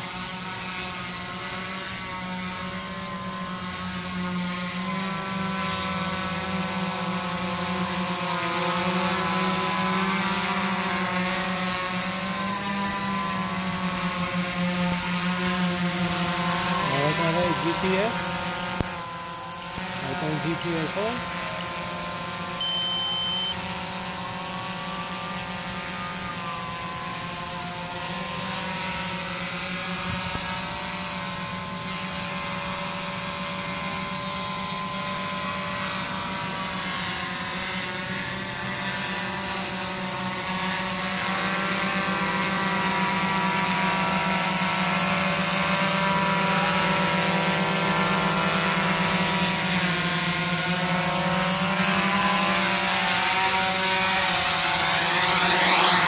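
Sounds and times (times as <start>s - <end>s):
drone propellers humming: 0.0s - 56.0s
short electronic beep: 22.6s - 23.6s.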